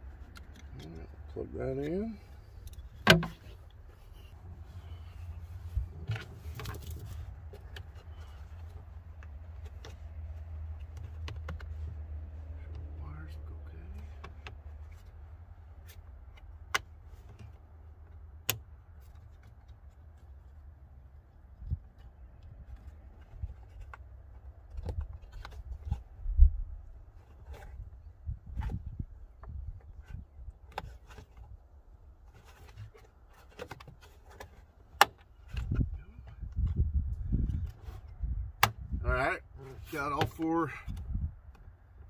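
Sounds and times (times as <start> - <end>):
low rumbling handling noise: 0.0 - 42.0
low steady hum: 0.0 - 42.0
plastic clicks and rubbing: 0.1 - 1.2, 32.3 - 36.8.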